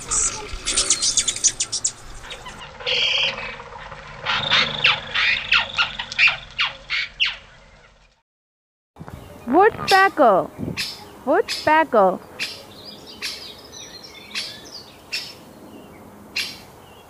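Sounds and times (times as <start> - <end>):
hummingbird chipping: 0.1 - 7.4, 10.8 - 15.4.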